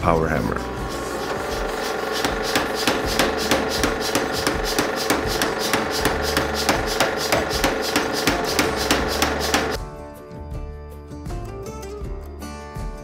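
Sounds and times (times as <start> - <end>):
background music: 0.0 - 13.0
power hammer striking hot steel: 0.7 - 9.8.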